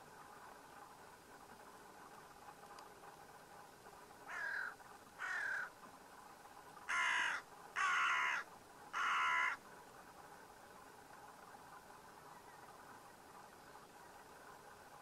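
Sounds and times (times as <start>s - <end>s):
crow cawing: 4.3s - 5.7s, 6.9s - 9.6s.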